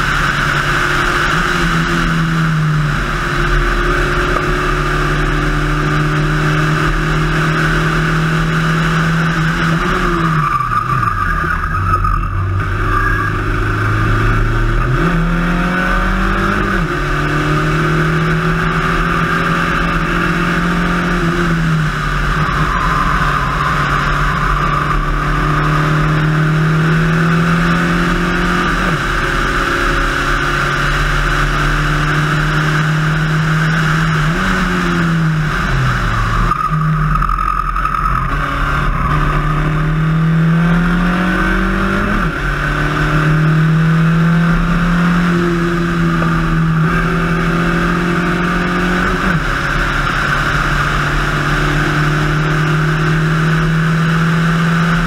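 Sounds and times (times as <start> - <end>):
race car engine revving high: 0.0 - 55.0
wind and tyre noise: 0.0 - 55.0.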